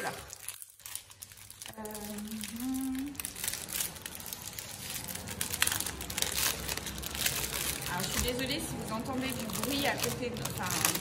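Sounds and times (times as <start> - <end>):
plastic bags crinkling: 0.0 - 11.0
person humming: 1.8 - 3.2.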